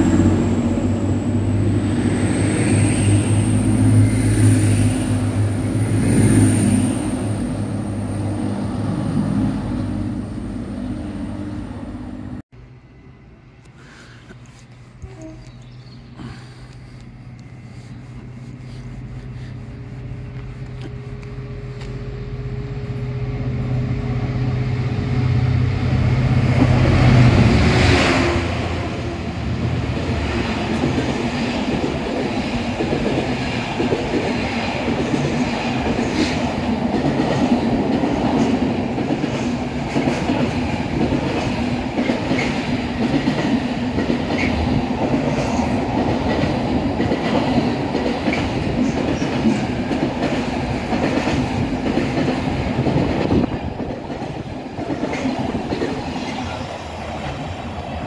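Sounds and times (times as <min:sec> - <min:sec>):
diesel locomotive engine: 0:00.0 - 0:58.0
train wagon wheels rolling: 0:29.6 - 0:58.0.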